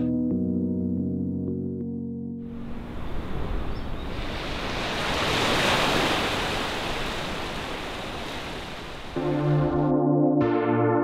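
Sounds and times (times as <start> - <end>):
waves washing onto rocky shore: 4.1 - 9.2.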